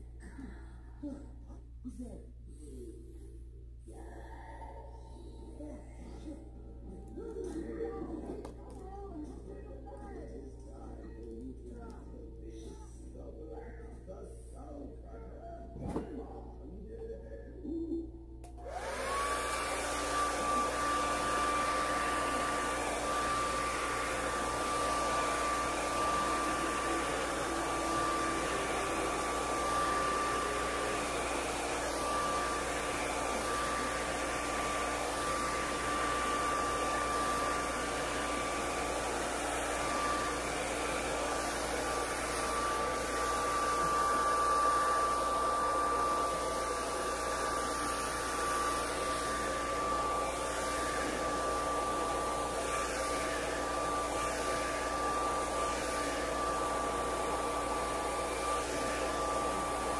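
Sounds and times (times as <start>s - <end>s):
hair dryer blowing: 18.4s - 59.9s.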